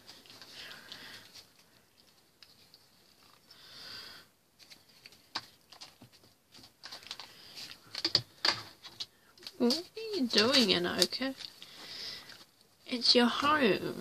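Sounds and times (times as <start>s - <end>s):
kitten scuffling on newspaper: 9.5s - 11.5s.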